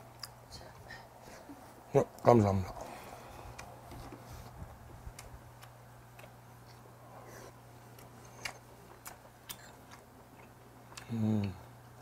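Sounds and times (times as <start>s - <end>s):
steady low hum: 0.0s - 12.0s
soft chewing: 2.7s - 12.0s.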